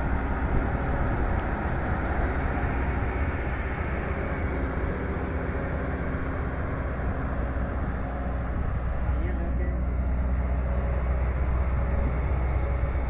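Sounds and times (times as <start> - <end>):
excavator diesel engine rumbling: 0.0 - 13.0.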